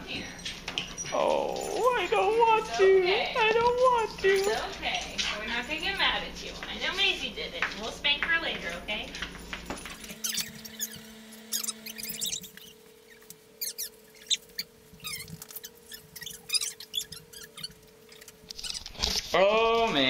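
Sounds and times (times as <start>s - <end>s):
dog whining: 9.8s - 19.0s.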